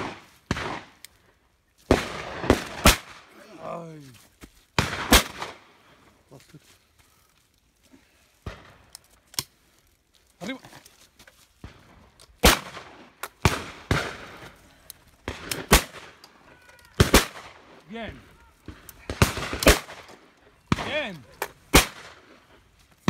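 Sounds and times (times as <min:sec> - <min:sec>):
shotgun shots: 0:00.0 - 0:01.0, 0:01.9 - 0:03.3, 0:04.8 - 0:05.6, 0:12.4 - 0:14.4, 0:15.2 - 0:16.2, 0:17.0 - 0:17.7, 0:18.7 - 0:22.3.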